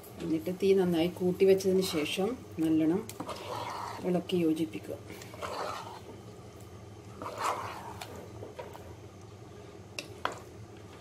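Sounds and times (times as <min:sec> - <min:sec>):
steady low hum: 0:00.0 - 0:11.0
spatula scraping in pot: 0:01.7 - 0:02.3, 0:03.1 - 0:04.3, 0:05.1 - 0:06.2, 0:07.1 - 0:09.0.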